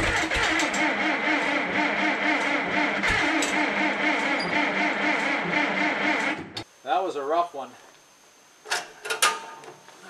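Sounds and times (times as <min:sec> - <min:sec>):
tractor engine running: 0:00.0 - 0:06.6.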